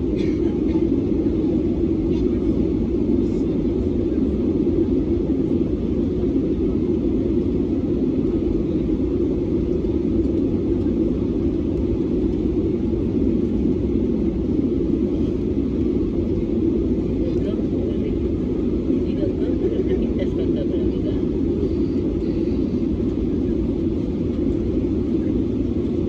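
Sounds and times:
airflow noise: 0:00.0 - 0:26.0
airplane cabin engine rumble: 0:00.0 - 0:26.0.

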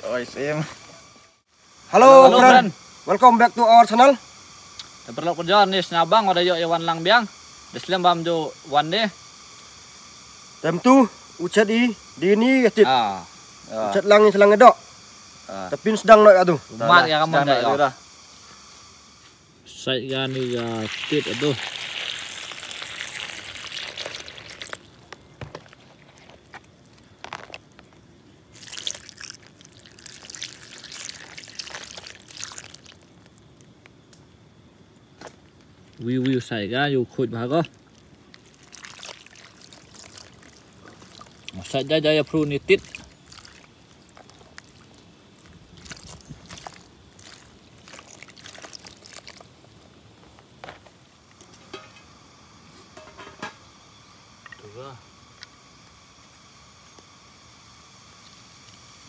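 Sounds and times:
water trickling and splashing: 0:20.1 - 0:25.0, 0:28.5 - 0:33.7, 0:37.3 - 0:49.7
water drips: 0:20.2 - 0:25.8, 0:28.6 - 0:33.7, 0:37.5 - 0:41.8, 0:42.7 - 0:49.5.

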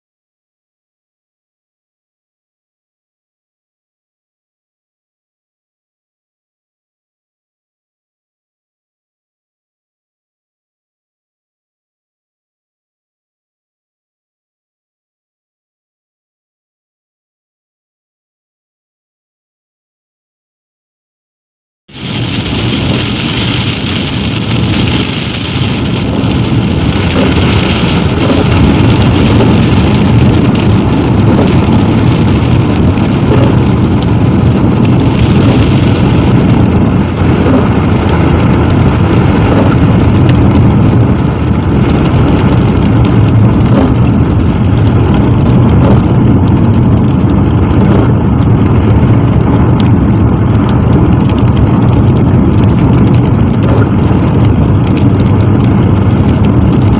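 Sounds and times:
rain on windscreen: 0:21.9 - 0:56.9
car road and engine noise: 0:22.0 - 0:56.9.

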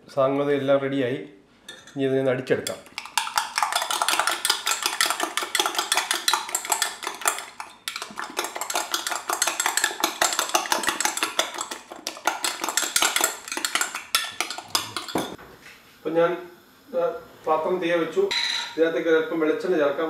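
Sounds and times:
utensil clinking against glass jug: 0:02.6 - 0:15.4.

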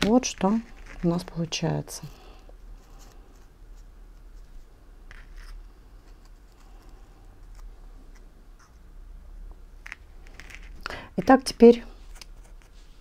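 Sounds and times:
fingers rustling ribbon: 0:00.0 - 0:02.1
low steady hum: 0:00.0 - 0:13.0.

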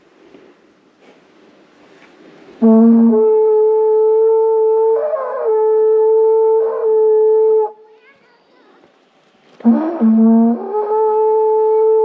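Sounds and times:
conch-shell trumpet long note: 0:02.6 - 0:07.9, 0:09.6 - 0:12.0.

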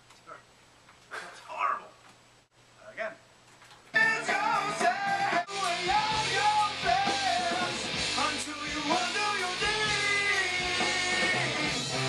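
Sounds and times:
guitar: 0:03.9 - 0:12.0
man singing: 0:03.9 - 0:12.0.

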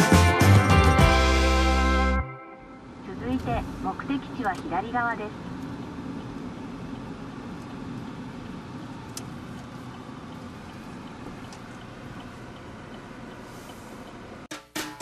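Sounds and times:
car engine and tyre rumble: 0:01.0 - 0:14.5
faint ticks: 0:09.0 - 0:14.3.

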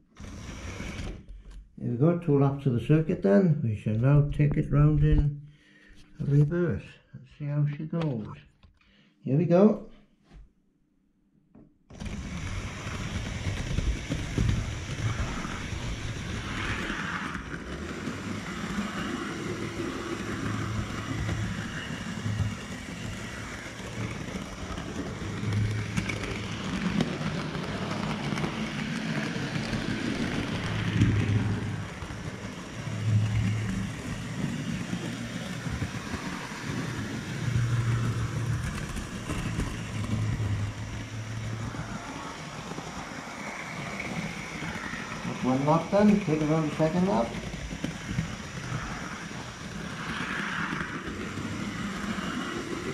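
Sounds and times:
model train wheels rattling on rail: 0:11.9 - 0:52.9.

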